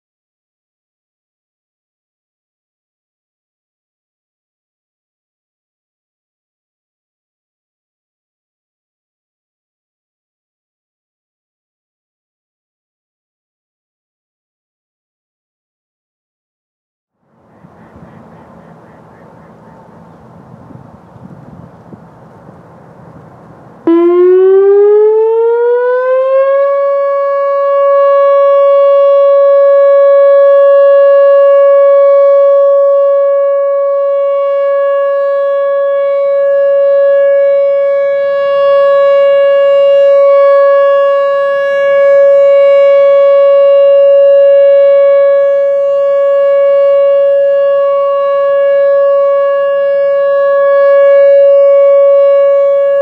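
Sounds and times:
electronic rotating siren: 17.4 - 53.0.

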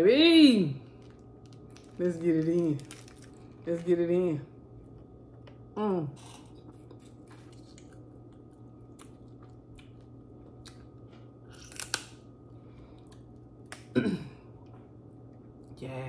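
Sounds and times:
crisp crackle: 0.8 - 4.3, 11.5 - 12.2
chewing crab legs: 0.9 - 3.7, 6.2 - 12.2.

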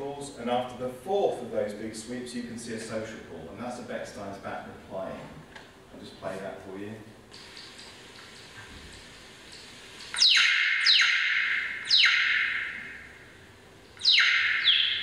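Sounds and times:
synthesized falling sweep calls: 10.2 - 13.4, 14.0 - 15.0.

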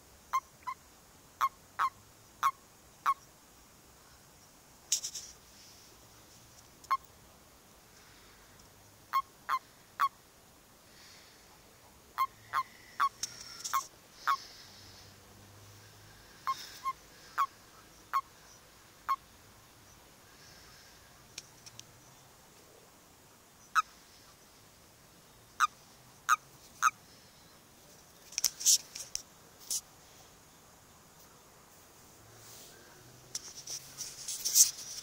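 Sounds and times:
toads croaking: 0.3 - 0.8, 1.4 - 3.3, 9.1 - 10.2, 11.5 - 15.1, 15.7 - 19.3, 23.6 - 24.0, 25.5 - 27.0.

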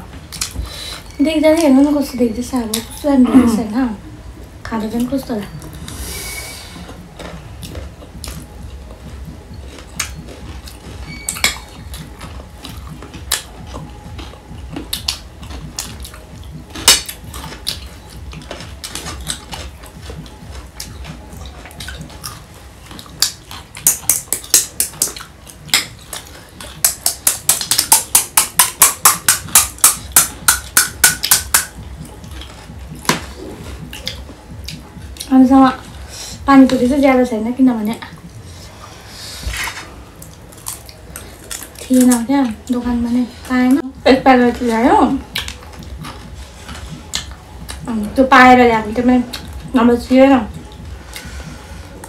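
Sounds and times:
chewing mouth noises: 7.2 - 27.9, 40.2 - 42.6, 45.3 - 47.9.

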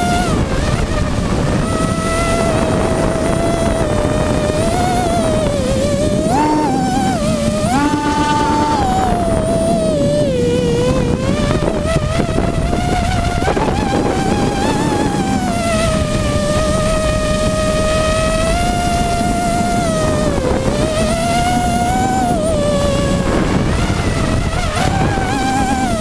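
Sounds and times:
drone motors whining: 0.0 - 26.0
wind on microphone: 0.0 - 26.0.

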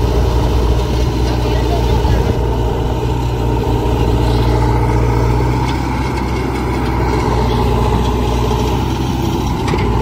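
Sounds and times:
diesel engine idling: 0.0 - 10.0.

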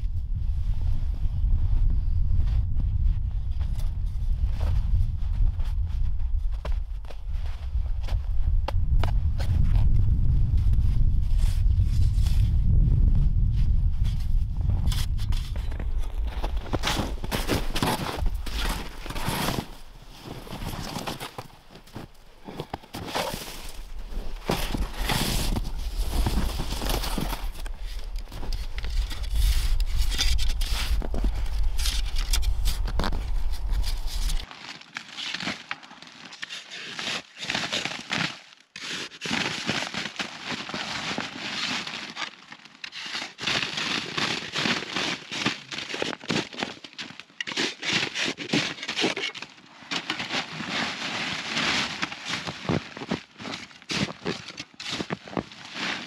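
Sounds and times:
wind rumble on microphone: 0.0 - 20.9, 23.7 - 34.4
plastic shovel scraping snow: 14.8 - 21.4, 23.0 - 34.6, 42.8 - 46.4, 50.0 - 56.0
hand shovel scraping snow walls: 14.8 - 34.5, 35.2 - 56.0.

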